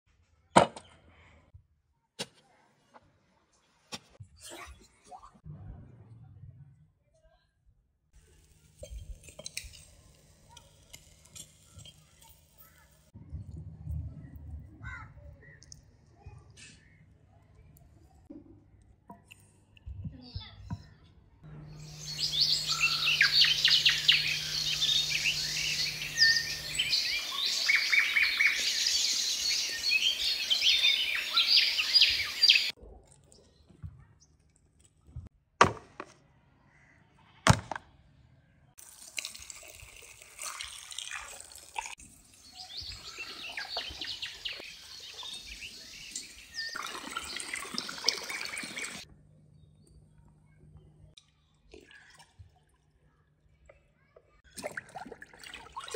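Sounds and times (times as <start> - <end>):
birds chirping and singing: 21.5 - 32.8, 42.4 - 49.0
water splashing into plastic tub: 54.5 - 55.9.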